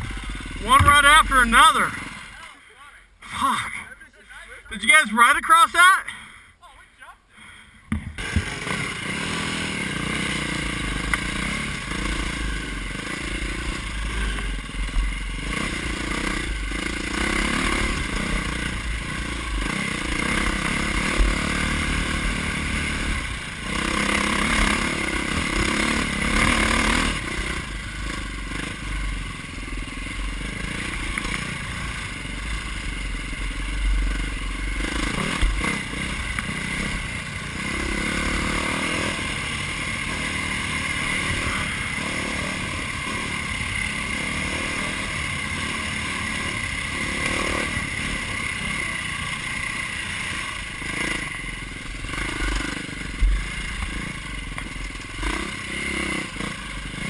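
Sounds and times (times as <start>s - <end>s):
dirt bike engine revving: 0.0s - 6.2s, 7.4s - 57.0s
bike rattling over bumps: 7.9s - 42.9s.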